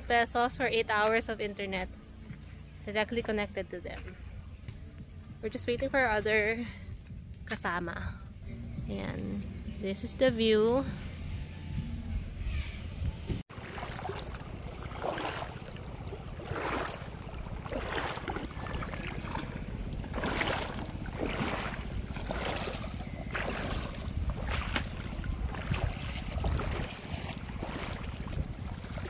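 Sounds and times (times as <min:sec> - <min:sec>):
wind rumbling on microphone: 0:04.0 - 0:29.0
footsteps wading through water: 0:13.4 - 0:29.0.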